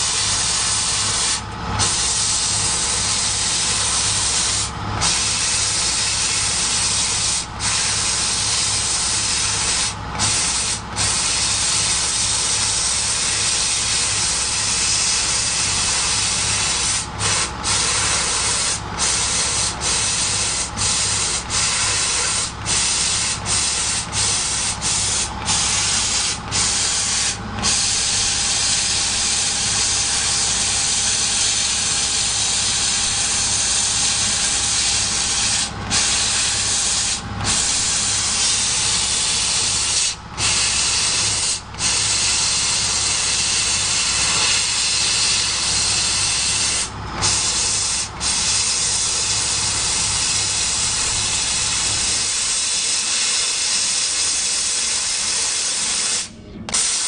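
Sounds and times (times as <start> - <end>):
low machine hum: 0.0 - 52.9, 56.3 - 56.8
laser cutter hissing: 0.0 - 57.0.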